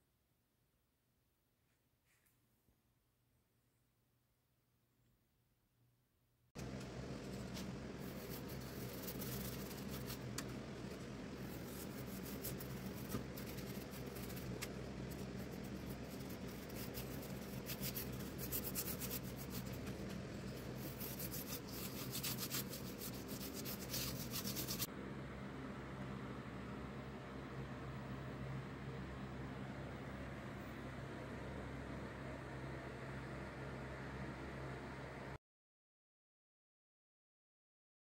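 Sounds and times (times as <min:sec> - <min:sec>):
steady low hum: 0:06.6 - 0:35.4
paintbrush scratching on wood: 0:07.3 - 0:10.3, 0:10.9 - 0:24.9.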